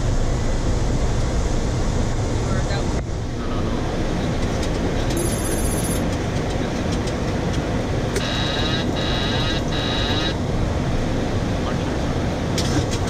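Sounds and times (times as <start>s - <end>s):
cockpit airflow and engine noise: 0.0s - 13.0s
repeating high alert tone: 8.2s - 10.4s.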